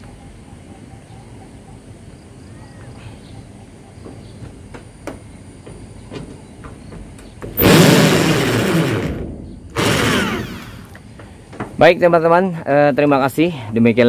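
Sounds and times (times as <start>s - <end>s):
cordless drill into roof sheeting: 7.6s - 11.0s.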